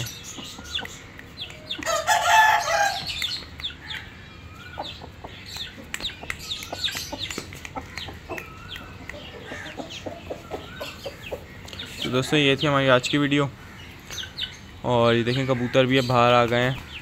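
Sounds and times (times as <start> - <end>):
high chirps and clucks: 0.0 - 17.0
rooster crowing: 1.9 - 3.1.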